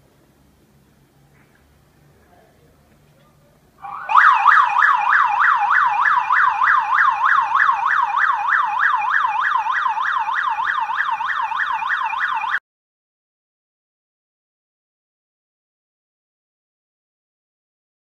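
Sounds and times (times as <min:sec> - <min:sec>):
burglar alarm siren warbling: 0:03.8 - 0:12.6.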